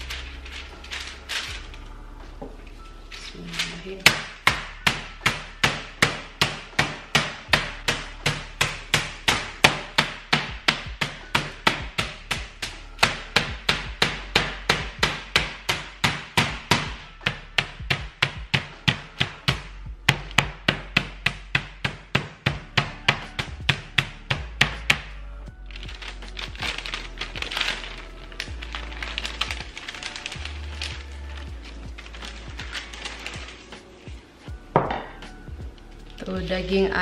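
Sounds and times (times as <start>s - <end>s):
meat mallet pounding chicken: 4.1s - 25.1s.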